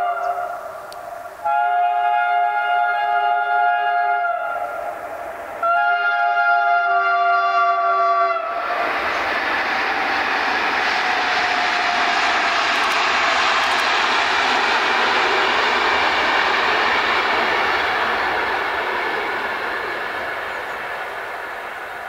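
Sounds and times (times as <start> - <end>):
train horn chord: 0.0 - 0.8, 1.4 - 5.0, 5.6 - 9.3
train rolling rumble: 0.0 - 22.0.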